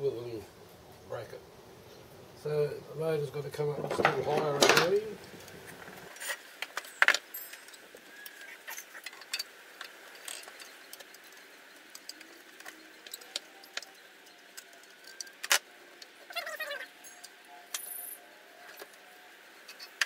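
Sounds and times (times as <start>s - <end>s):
hand tool clinking on metal: 6.8s - 7.9s.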